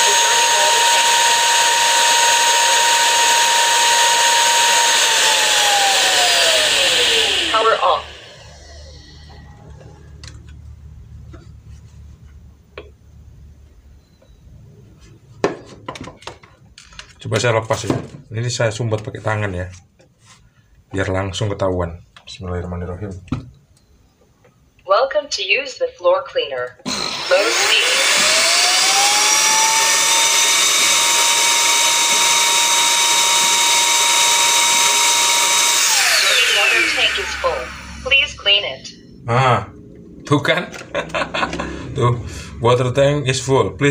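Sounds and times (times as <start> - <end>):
floor cleaner suction motor whine: 0.0 - 10.4, 26.8 - 42.8
steady low hum: 36.3 - 43.9.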